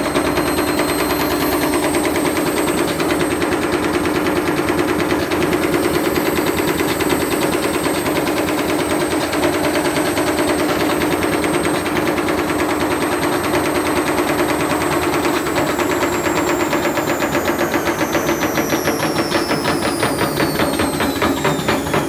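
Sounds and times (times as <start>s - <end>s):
tumble dryer drum clattering: 0.0s - 22.0s.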